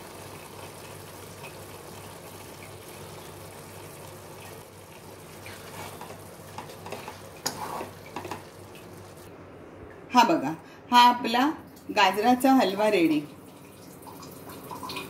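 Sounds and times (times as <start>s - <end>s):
spatula scraping pot: 5.5s - 8.5s.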